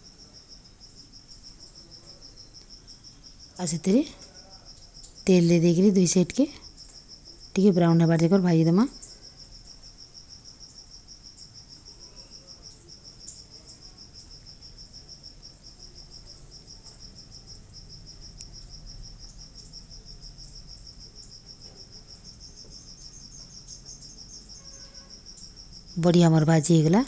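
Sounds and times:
faint low hum: 0:00.0 - 0:27.0
insect chirping: 0:00.0 - 0:27.0.

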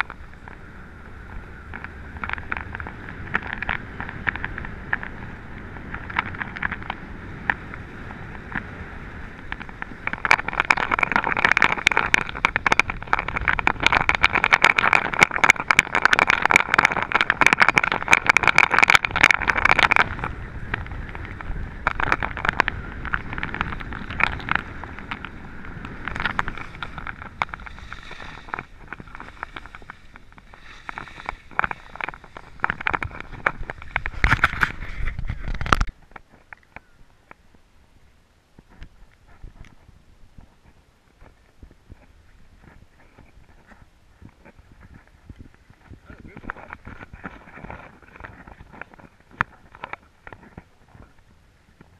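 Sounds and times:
skis scraping over snow: 0:00.0 - 0:36.5
wind noise on microphone: 0:00.0 - 0:51.9.

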